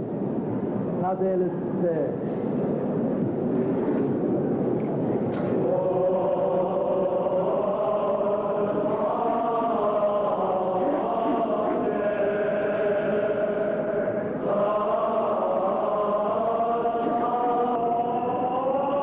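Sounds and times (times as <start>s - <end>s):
voices chanting long notes: 5.6s - 19.0s.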